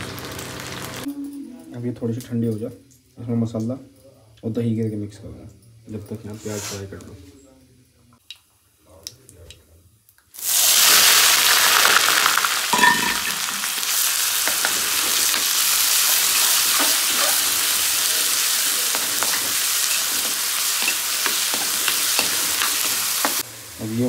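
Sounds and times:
onions sizzling in hot oil: 0.0 - 1.1, 10.3 - 24.0.

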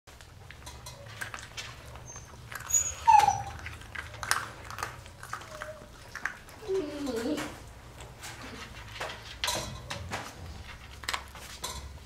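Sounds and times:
puppies crunching kibble: 0.1 - 12.0
puppy whimpering: 1.8 - 7.7.

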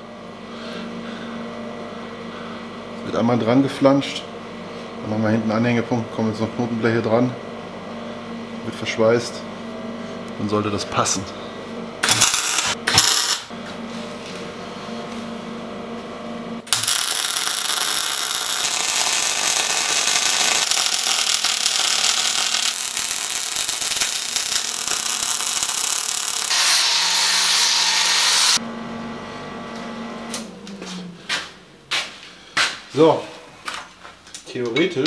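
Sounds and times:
steady low hum: 0.0 - 26.5, 28.6 - 35.0
welding arc crackling: 12.0 - 13.5, 16.7 - 28.6.

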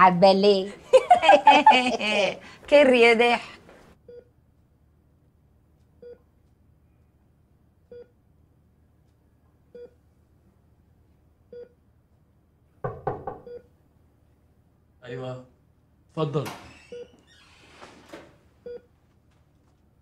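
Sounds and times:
patient monitor beeping: 4.0 - 4.4, 5.9 - 6.3, 9.7 - 10.0, 13.4 - 13.8, 16.8 - 17.3, 18.6 - 19.0.

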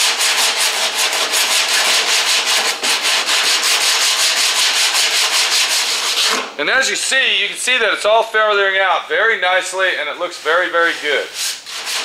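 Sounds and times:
sandpaper rubbing on filler: 0.0 - 6.4, 9.7 - 12.0.

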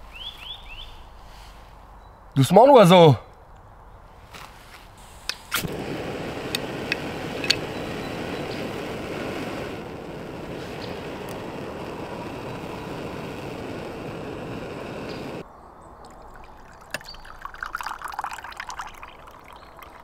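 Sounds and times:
gas stove burner hissing: 5.0 - 15.4
coffee pouring into cup: 16.0 - 20.0.

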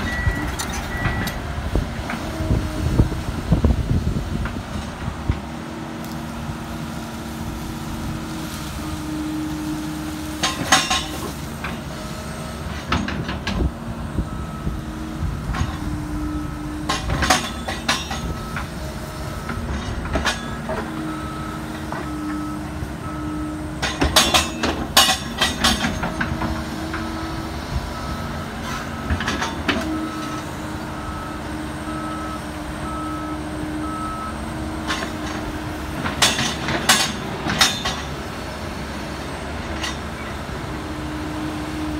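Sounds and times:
excavator bucket clanking: 0.0 - 2.7, 10.3 - 27.4, 28.4 - 31.1, 34.7 - 38.4
excavator engine and hydraulic hum: 0.0 - 41.9.

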